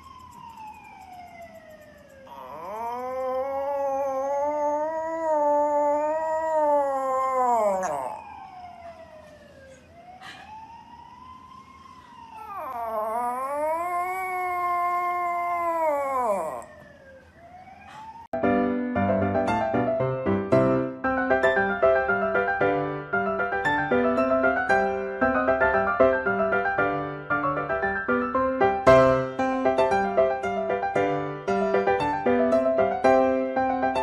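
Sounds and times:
dog whining: 2.3s - 8.4s, 12.4s - 16.9s
dog howling: 2.3s - 8.9s, 12.3s - 16.9s.

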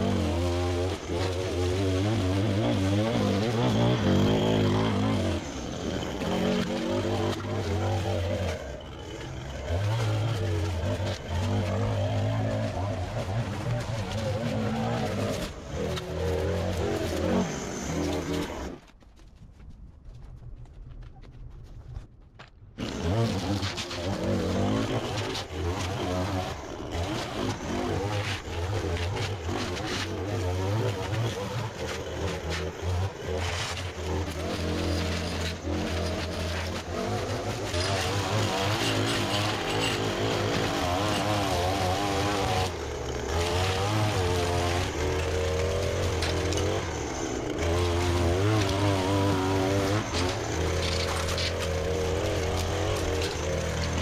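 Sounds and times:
string trimmer cutting grass: 0.0s - 19.0s, 22.8s - 54.0s.

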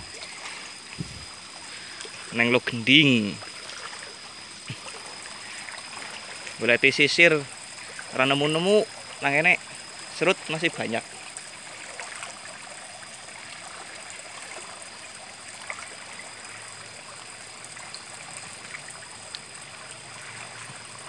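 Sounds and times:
river water flowing: 0.0s - 21.0s
faint ticks: 17.9s - 19.5s.

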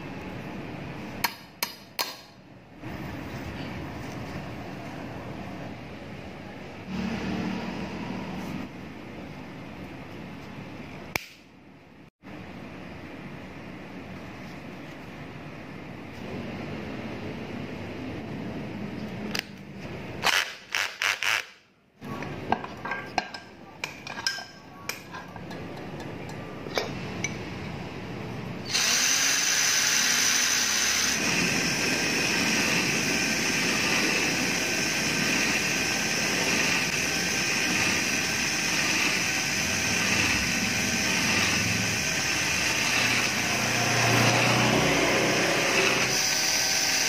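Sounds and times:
cordless drill running: 28.7s - 47.0s.

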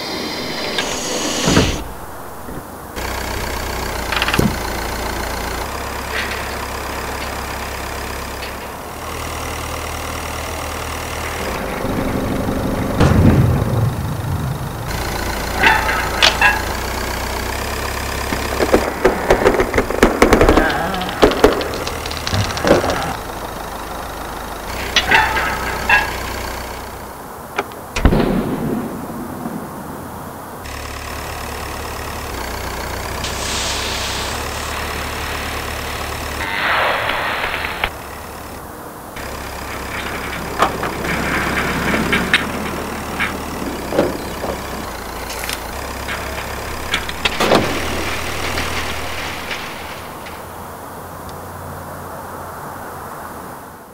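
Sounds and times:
low mechanical hum: 0.0s - 53.9s
small engine idling: 0.4s - 29.0s, 30.1s - 52.2s
heavy thump: 0.5s - 2.7s
machinery clanks and clicks: 0.6s - 29.6s, 30.2s - 51.5s
sharp clicks and knocks: 3.4s - 4.8s, 18.3s - 23.2s.

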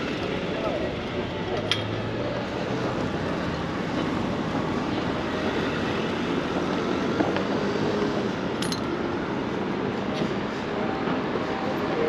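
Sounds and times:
city street noise: 0.0s - 12.0s
low traffic rumble: 0.0s - 12.0s.

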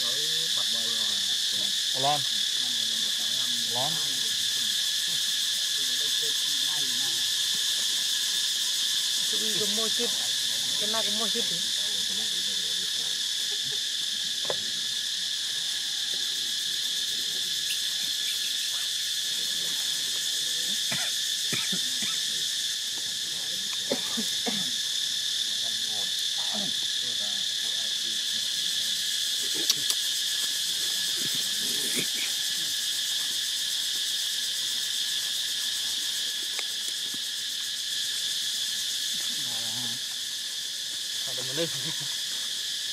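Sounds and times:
shrill insects buzzing: 0.0s - 42.9s.

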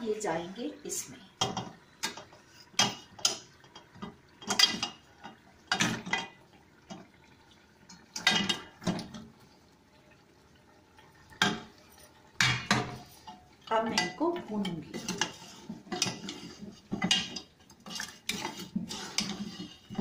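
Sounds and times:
bones clattering into metal pot: 1.4s - 7.2s, 8.0s - 9.2s, 11.3s - 20.0s.

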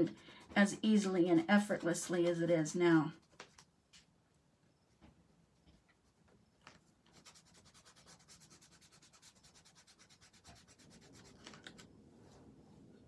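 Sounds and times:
fingertip rubbing crayon on paper: 7.1s - 11.8s.

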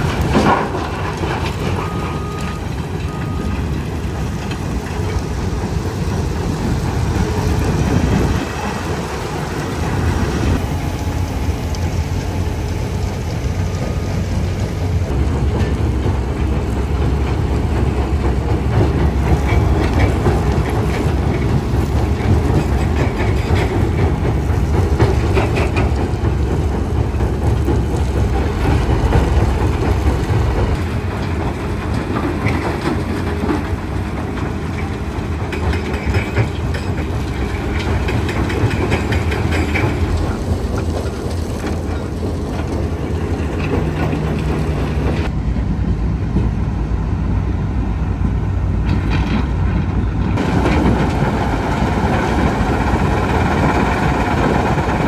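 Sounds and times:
rock crushing clatter: 0.0s - 5.5s
diesel engines rumbling: 0.0s - 55.0s.

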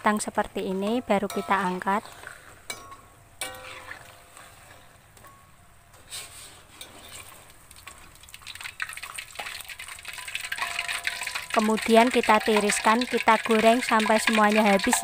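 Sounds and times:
metal utensils clicking on wok: 0.2s - 6.1s, 6.8s - 15.0s
chips sizzling in hot oil: 6.8s - 15.0s.

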